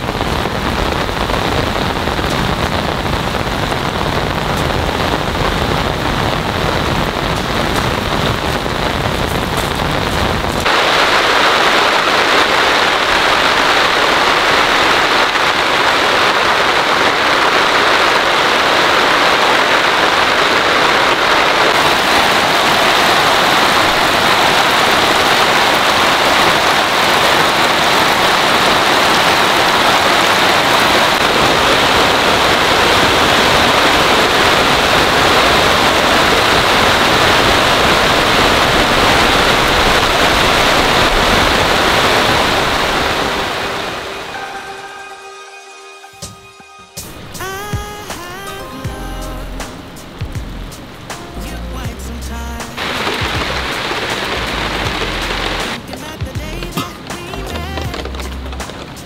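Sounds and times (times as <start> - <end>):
heavy rain pouring: 0.0 - 45.2, 47.0 - 59.0.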